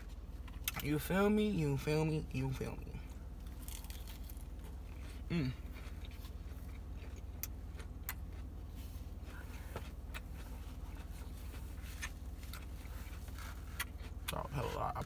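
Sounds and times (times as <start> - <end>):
steady low hum: 0.0 - 15.0
chewing lettuce: 3.4 - 15.0
person humming mm: 5.3 - 5.6.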